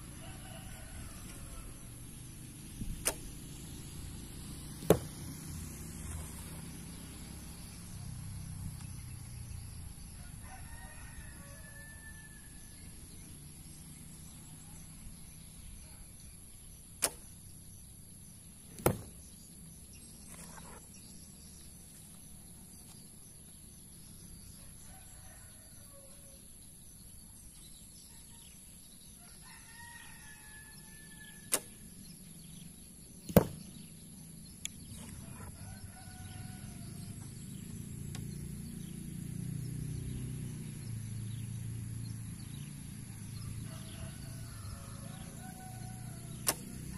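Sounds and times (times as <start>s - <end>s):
arrow hitting target: 2.8s - 3.6s, 4.8s - 5.4s, 17.0s - 17.5s, 18.7s - 19.3s, 31.4s - 31.9s, 33.2s - 33.8s, 46.3s - 46.9s
bow string snap: 2.8s - 3.6s, 17.0s - 17.3s, 31.5s - 31.8s, 46.3s - 46.9s.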